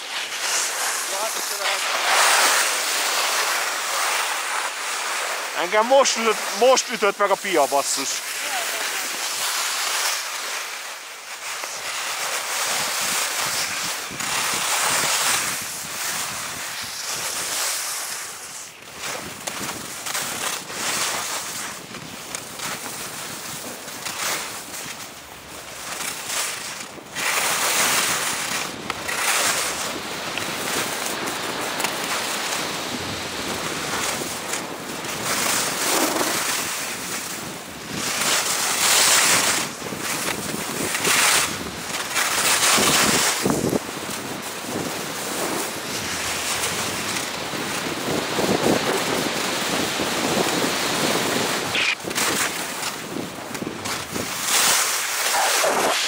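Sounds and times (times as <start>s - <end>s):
skis scraping on snow: 0.0s - 56.0s
wind on microphone: 32.6s - 56.0s.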